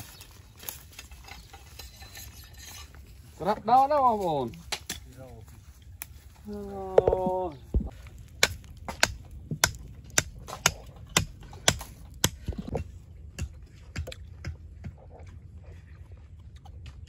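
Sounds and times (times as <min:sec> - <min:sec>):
sharp knocks: 0:07.0 - 0:12.8.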